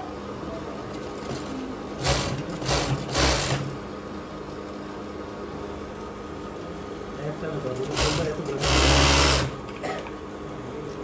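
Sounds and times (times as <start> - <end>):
sewing machine stitching: 1.2 - 3.8, 7.8 - 9.6.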